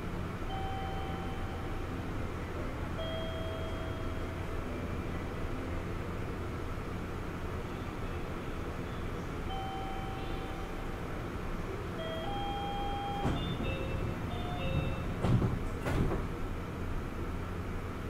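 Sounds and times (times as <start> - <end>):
air conditioning humming: 0.0 - 18.0
electronic door-closing chime: 12.0 - 15.1
sliding doors thudding shut: 12.9 - 16.4.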